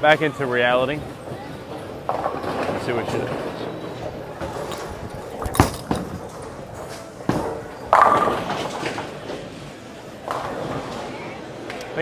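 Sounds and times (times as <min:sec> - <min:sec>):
bowling pins clattering: 0:00.9 - 0:11.1
bowling ball thud and roll: 0:01.8 - 0:09.6, 0:10.2 - 0:11.1.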